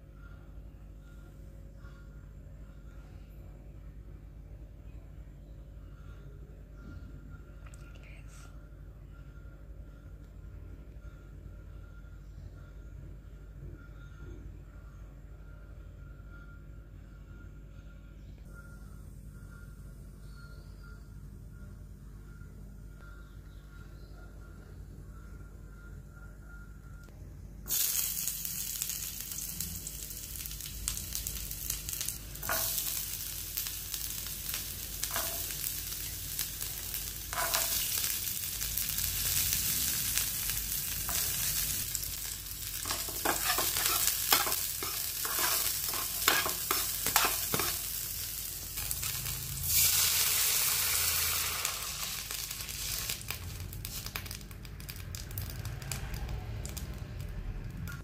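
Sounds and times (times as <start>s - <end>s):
vegetables sizzling in oil: 27.7s - 57.0s
metal spoon scraping pan: 42.8s - 47.8s.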